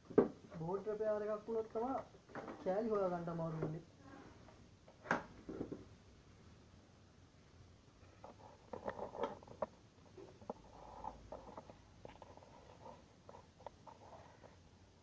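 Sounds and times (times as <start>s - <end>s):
handling noises on a workbench: 8.2s - 14.7s.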